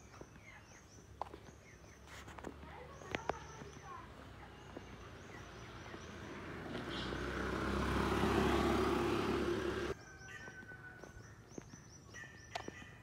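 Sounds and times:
motor scooter passing: 2.5s - 11.0s.

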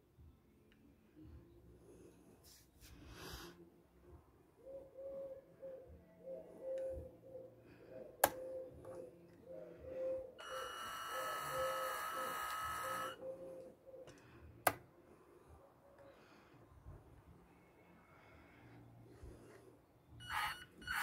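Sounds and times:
electric motors whining: 10.4s - 13.2s, 20.2s - 21.0s.

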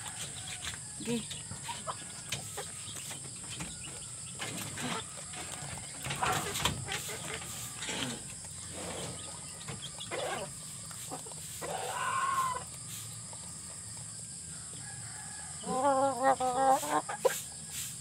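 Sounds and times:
chickens clucking: 0.0s - 14.9s, 15.6s - 18.0s
chicken call: 10.0s - 13.0s, 15.6s - 17.4s.

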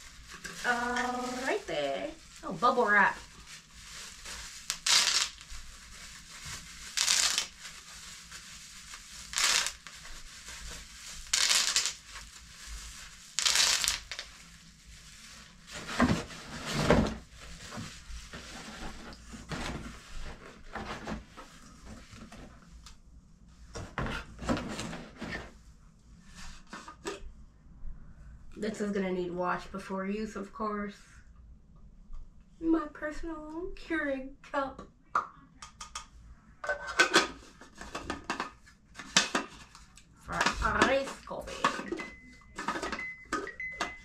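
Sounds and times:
bubble wrap rustling: 0.0s - 22.3s.

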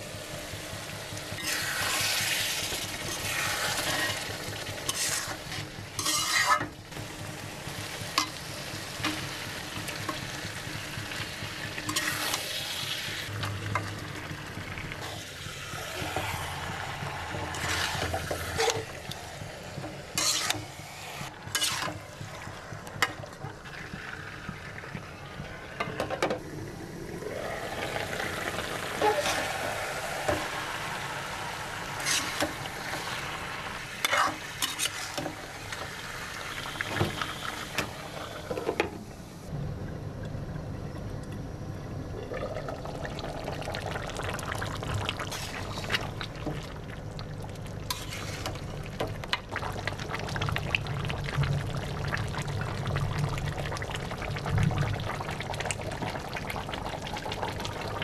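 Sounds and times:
frying sizzle: 0.0s - 38.9s, 42.3s - 58.0s
metal spoon scraping wok: 3.0s - 6.8s, 11.9s - 12.5s, 17.3s - 18.9s, 20.1s - 20.8s, 21.5s - 22.0s, 29.0s - 29.5s, 32.0s - 32.6s, 34.0s - 35.4s, 45.3s - 46.0s, 47.9s - 48.6s.

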